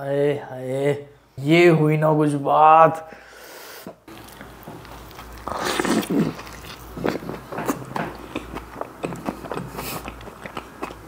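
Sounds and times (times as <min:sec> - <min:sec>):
biting into a burger: 0:04.1 - 0:11.0
close-miked chewing: 0:04.1 - 0:11.0.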